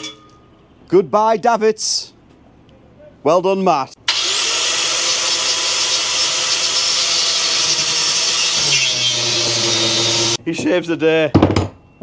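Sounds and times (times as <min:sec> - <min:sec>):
power tool high whine: 0:04.1 - 0:10.4.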